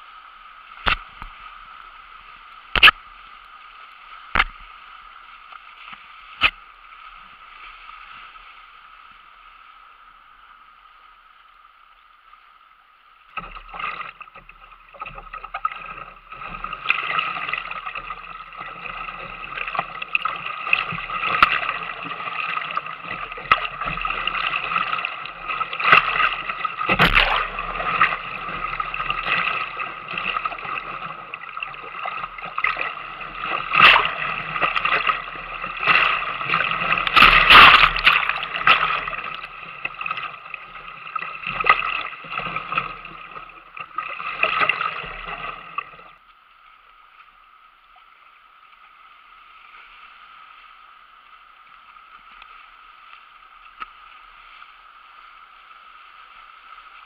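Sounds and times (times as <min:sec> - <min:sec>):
waves splashing over bow: 0:13.3 - 0:46.2.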